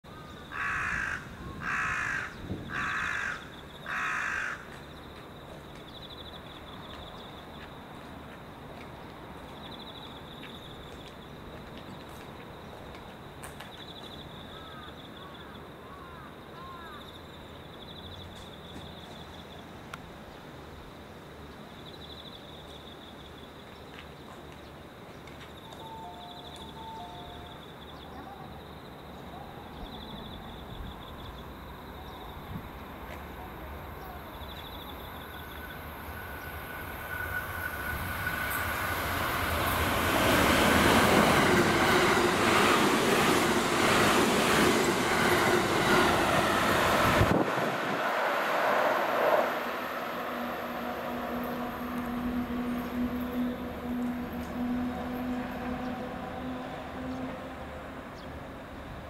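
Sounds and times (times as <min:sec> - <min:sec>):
crow cawing: 0:00.5 - 0:04.7, 0:14.6 - 0:14.9, 0:15.8 - 0:17.0
faint high-pitched pulsing trill: 0:49.8 - 0:58.4.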